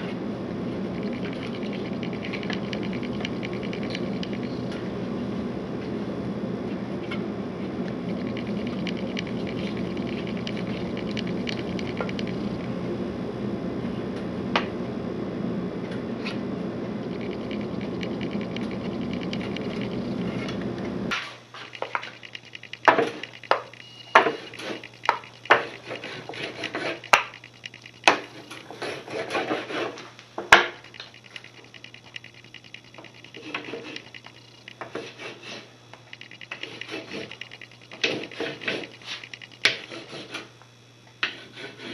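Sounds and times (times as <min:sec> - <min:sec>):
waxing iron rushing noise: 0:00.0 - 0:05.7, 0:06.8 - 0:13.6, 0:16.2 - 0:30.1, 0:30.8 - 0:40.5, 0:41.2 - 0:41.9.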